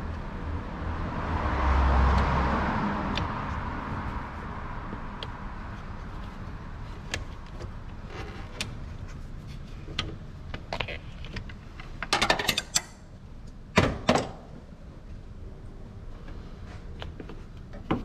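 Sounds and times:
metallic clicks of tools and parts: 0:11.3 - 0:13.0.

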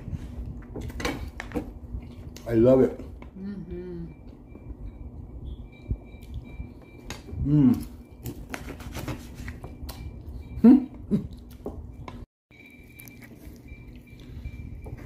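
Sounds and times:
man chewing: 0:00.0 - 0:02.4, 0:04.3 - 0:15.0
man humming mmm: 0:07.4 - 0:08.0.

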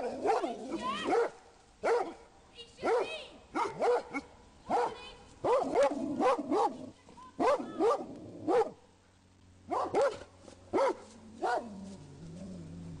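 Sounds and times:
dogs barking: 0:01.1 - 0:02.2, 0:02.8 - 0:06.8, 0:07.4 - 0:08.8, 0:09.7 - 0:11.7.

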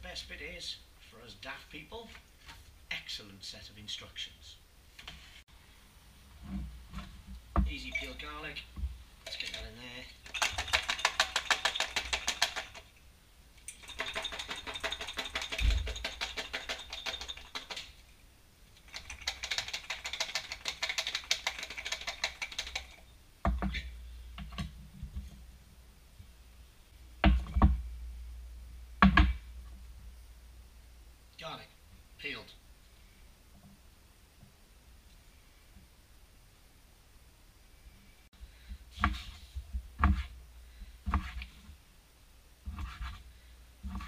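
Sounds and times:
garlic rattling in a shaken jar: 0:09.3 - 0:12.9, 0:13.7 - 0:18.0, 0:18.9 - 0:23.0
knocks and thumps: 0:13.8 - 0:17.9, 0:19.0 - 0:25.4, 0:27.2 - 0:28.0, 0:29.0 - 0:29.8.

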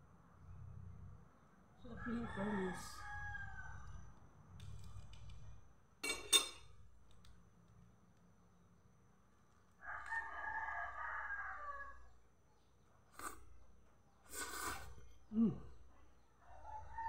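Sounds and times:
rooster crowing: 0:01.8 - 0:04.1, 0:09.8 - 0:12.2, 0:16.4 - 0:17.0.

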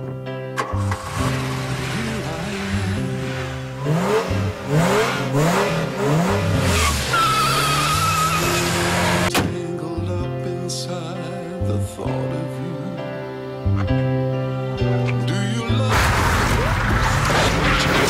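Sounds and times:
background music: 0:00.0 - 0:18.0
car engine revving: 0:00.6 - 0:09.3, 0:15.8 - 0:18.0
tyres squealing: 0:06.5 - 0:09.3.

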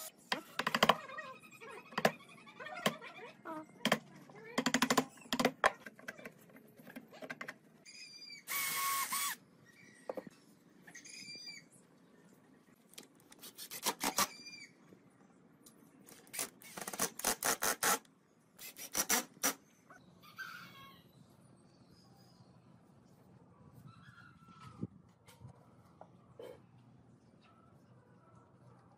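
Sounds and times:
woodworking tools clicking and tapping: 0:00.3 - 0:01.0, 0:03.8 - 0:07.6.

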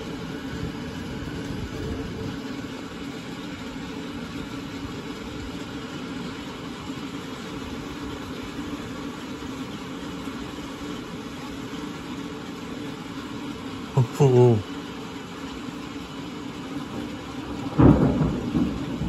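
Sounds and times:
mechanical hum: 0:00.0 - 0:14.0.

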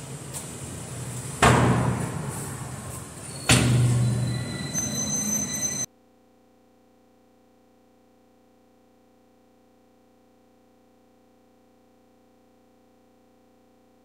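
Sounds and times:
door creak: 0:03.2 - 0:05.9.

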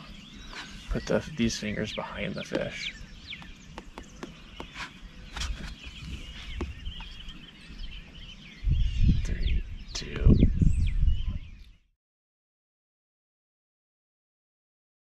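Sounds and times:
small birds chirping: 0:00.0 - 0:11.9.

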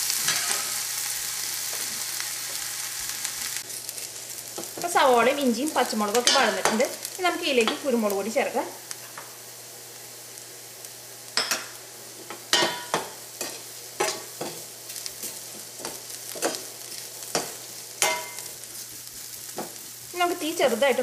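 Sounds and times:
vegetables sizzling in oil: 0:00.0 - 0:21.0
spatula scraping a pan: 0:00.1 - 0:00.8, 0:12.5 - 0:19.8.

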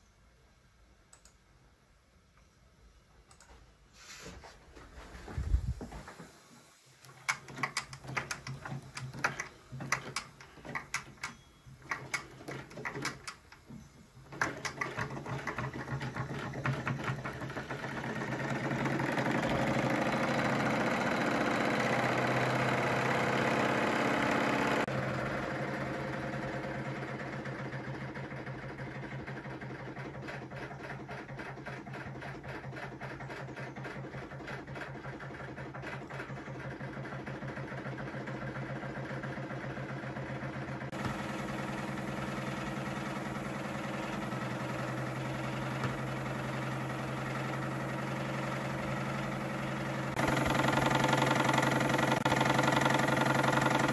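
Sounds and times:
toy steam engine running: 0:50.1 - 0:53.9.

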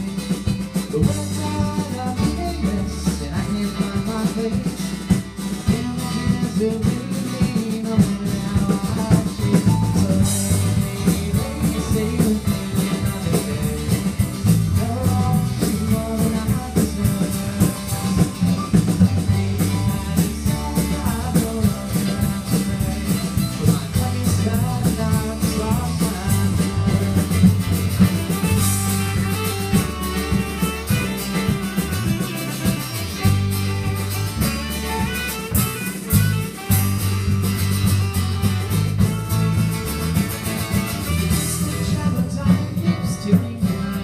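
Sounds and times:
live rock band playing: 0:00.0 - 0:44.0.

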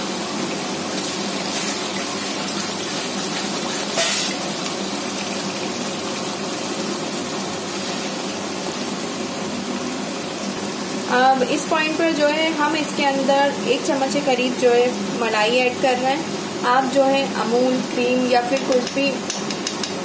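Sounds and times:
masala sizzling in oil: 0:00.0 - 0:20.0
spatula scraping pan: 0:01.5 - 0:04.4.

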